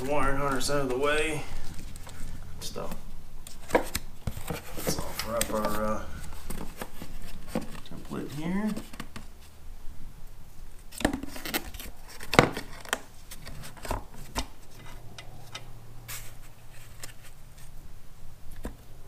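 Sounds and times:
faint low hum: 0:00.0 - 0:19.0.

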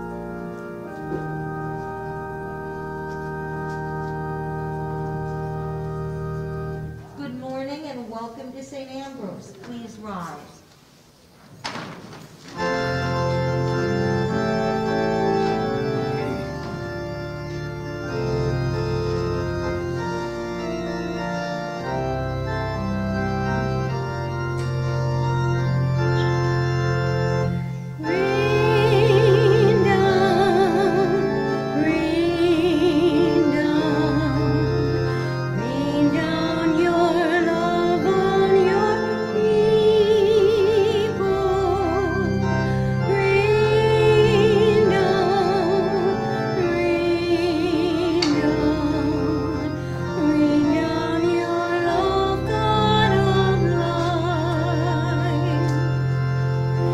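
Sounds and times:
church organ playing chords: 0:00.0 - 0:07.6, 0:12.5 - 0:56.9
person singing with vibrato: 0:28.0 - 0:55.9.

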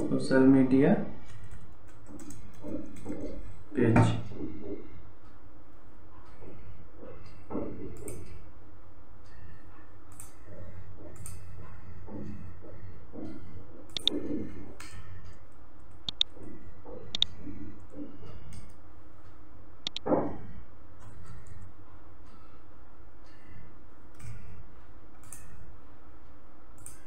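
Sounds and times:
steady low hum: 0:00.0 - 0:27.0
keyboard typing: 0:01.2 - 0:03.5, 0:13.9 - 0:14.3, 0:15.8 - 0:16.4.

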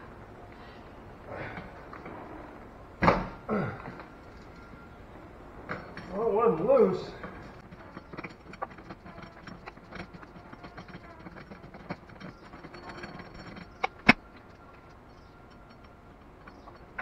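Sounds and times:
hand tools clicking and rattling: 0:05.7 - 0:17.0
sharp clacks: 0:07.6 - 0:17.0.

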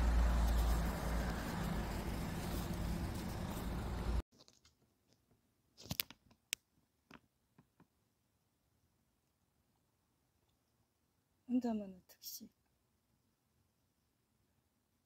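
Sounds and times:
outdoor low rumble: 0:00.0 - 0:04.2.

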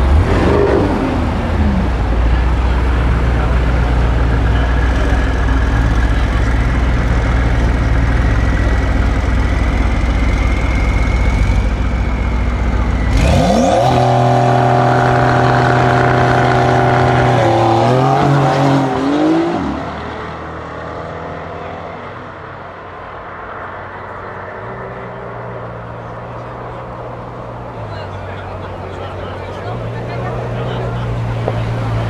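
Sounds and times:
car engine revving: 0:00.0 - 0:22.0
deep low engine rumble: 0:00.0 - 0:32.0.

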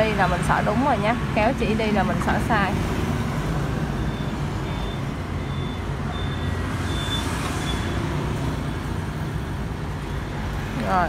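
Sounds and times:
low rumble of street traffic: 0:00.0 - 0:11.0
faint high beeps: 0:04.0 - 0:08.0.

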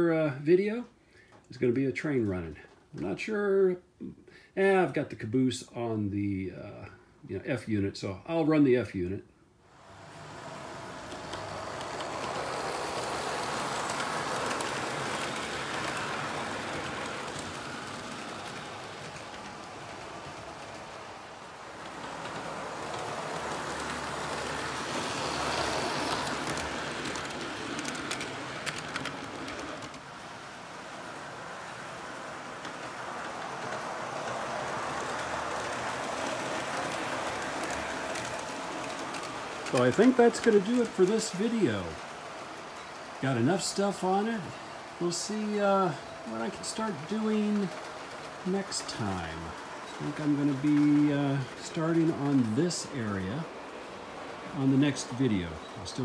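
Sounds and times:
model train wheels rumbling on rails: 0:09.6 - 0:56.0
faint clicks: 0:21.8 - 0:30.0, 0:32.4 - 0:40.9.

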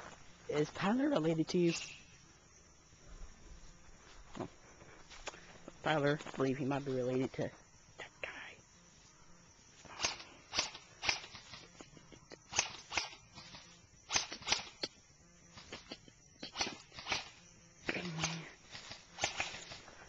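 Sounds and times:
footsteps on leafy dirt: 0:03.4 - 0:07.3.

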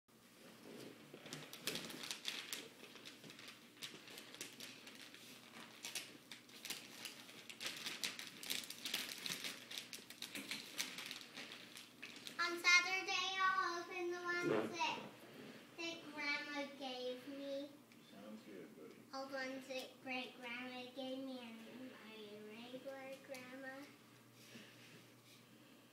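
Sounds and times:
wrapping paper crinkling: 0:00.3 - 0:13.4
young child singing: 0:12.4 - 0:15.1, 0:15.8 - 0:17.7.

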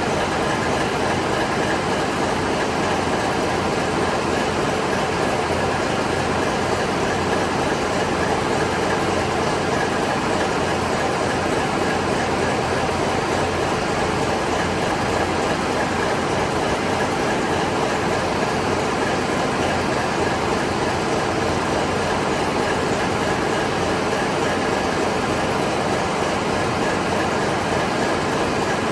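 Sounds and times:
diesel engine room din: 0:00.0 - 0:28.9.

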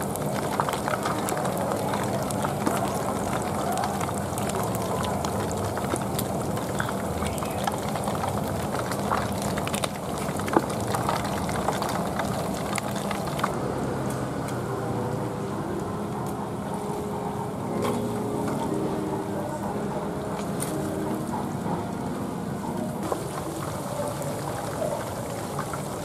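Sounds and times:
oil sizzling and crackling: 0:00.0 - 0:16.4, 0:22.8 - 0:26.0.

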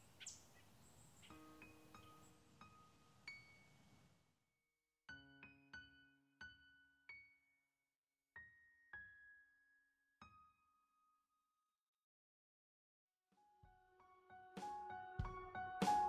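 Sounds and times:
faint outdoor noise: 0:00.0 - 0:04.3.

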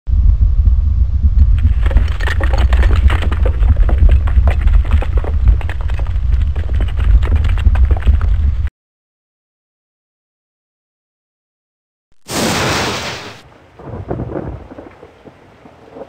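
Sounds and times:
deep rumble: 0:00.1 - 0:08.7
crackling hits: 0:01.3 - 0:08.7, 0:12.2 - 0:15.4.

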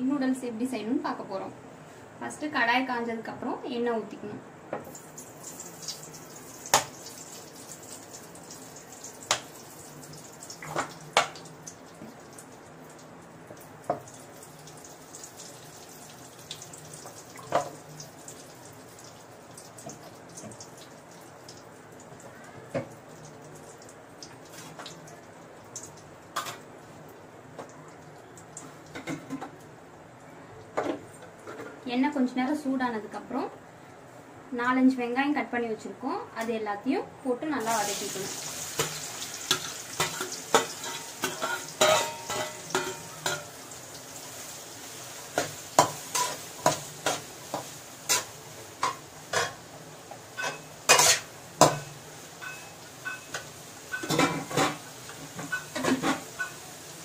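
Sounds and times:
oil popping and crackling: 0:04.8 - 0:26.6, 0:37.8 - 0:49.6
metal spatula scraping a pan: 0:38.8 - 0:43.5, 0:50.4 - 0:51.3, 0:55.5 - 0:56.6.

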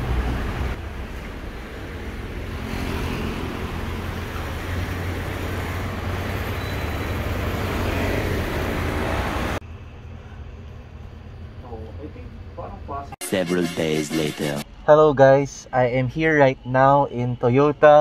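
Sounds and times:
traffic engine rumble: 0:00.0 - 0:13.2.

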